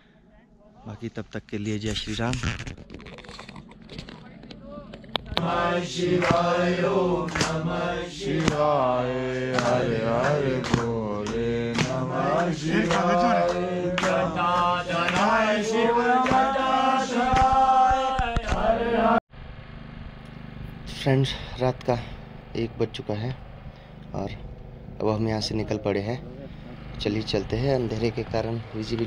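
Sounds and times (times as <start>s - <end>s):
steady drone: 3.6s - 29.0s
devotional chant singing: 4.6s - 19.2s.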